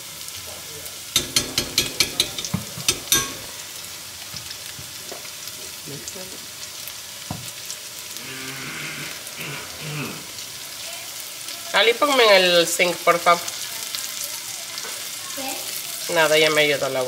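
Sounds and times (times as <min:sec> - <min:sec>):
onion sizzling in oil: 0:00.0 - 0:17.0
metal spoon clinking on pan: 0:01.2 - 0:03.7.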